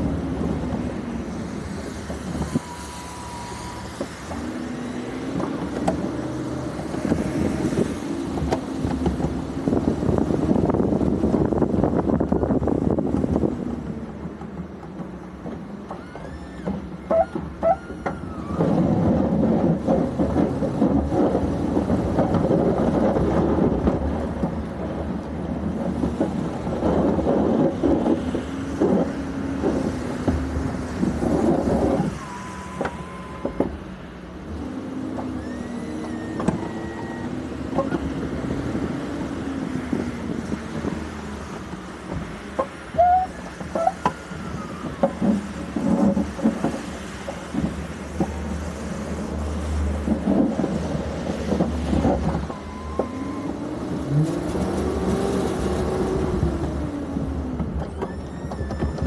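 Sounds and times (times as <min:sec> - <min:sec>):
steady rushing noise: 0:00.0 - 0:15.8
pickup truck engine: 0:00.0 - 0:59.0.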